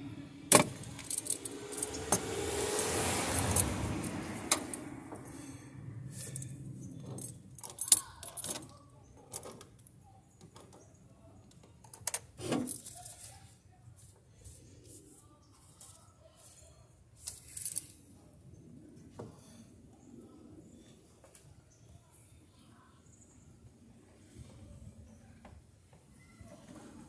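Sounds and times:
broad rushing noise: 0.5s - 6.8s.

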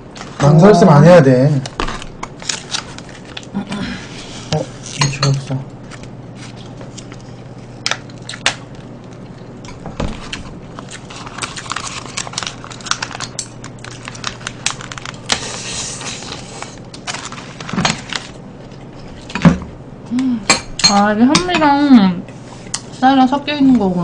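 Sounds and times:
plastic film crinkling: 1.7s - 3.6s, 10.1s - 19.2s.

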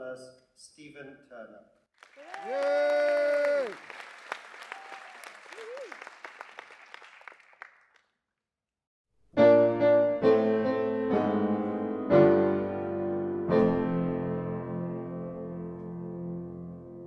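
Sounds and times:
applause: 1.9s - 8.2s
slow piano music: 9.3s - 17.0s.

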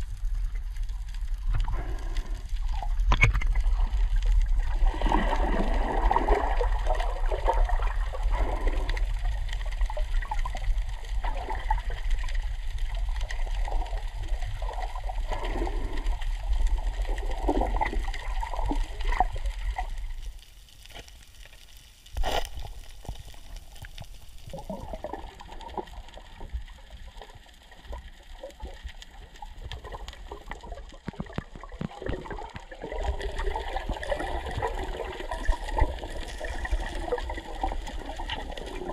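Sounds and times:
sea water sloshing: 0.8s - 12.2s.

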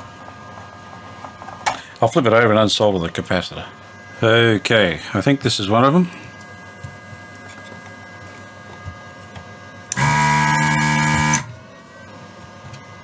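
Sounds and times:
faint steady hum: 0.0s - 13.0s
desoldering gun vacuum pump buzzing: 3.9s - 11.6s.

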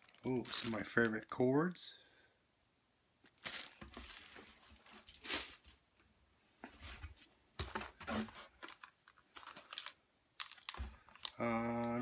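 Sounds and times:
plastic bags rustling: 0.0s - 1.4s, 3.2s - 5.8s, 7.6s - 11.4s.

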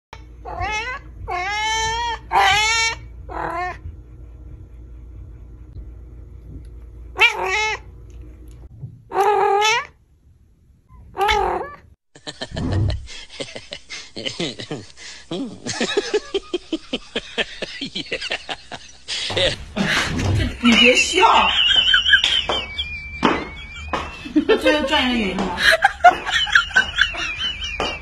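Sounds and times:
cat meowing: 0.4s - 3.8s, 7.2s - 7.8s, 9.1s - 10.0s.

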